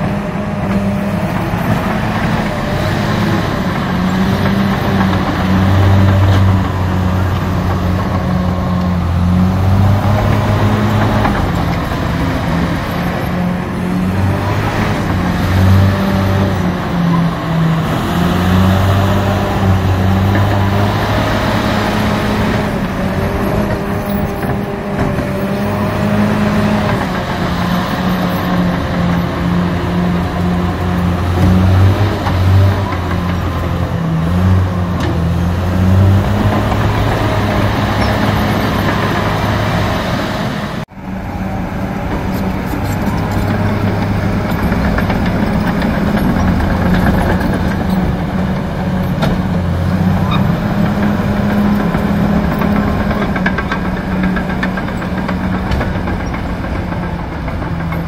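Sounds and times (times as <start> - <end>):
diesel loader engine under load: 0.0 - 58.0.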